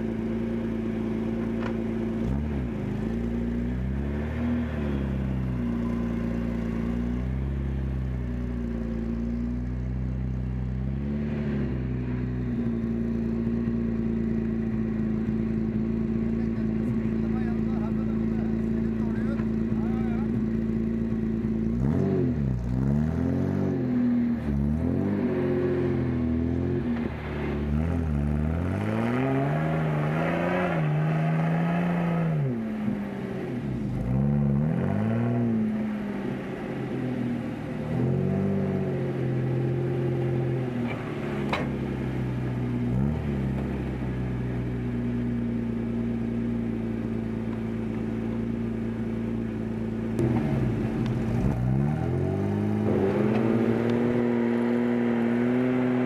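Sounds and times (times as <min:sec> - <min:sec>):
truck engine revving: 0:50.1 - 0:56.0.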